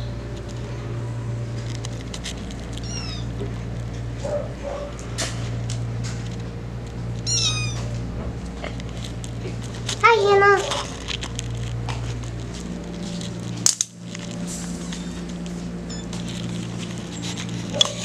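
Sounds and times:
steady low hum: 0:00.0 - 0:18.0
kittens mewing: 0:02.6 - 0:03.6, 0:07.2 - 0:11.0, 0:14.6 - 0:18.0.

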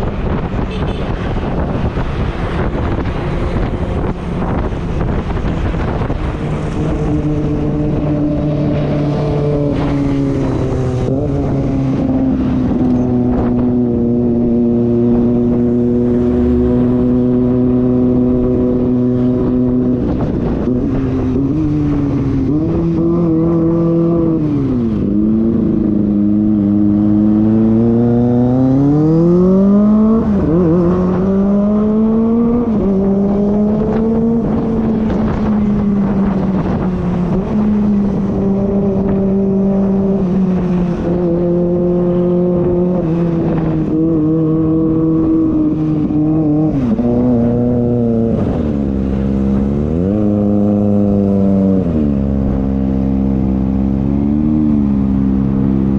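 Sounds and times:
motorcycle engine revving: 0:00.0 - 0:55.9.

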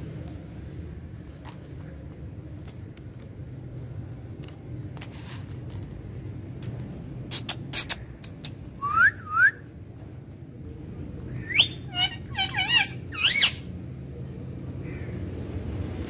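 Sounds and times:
parakeet whistling: 0:11.4 - 0:13.6.

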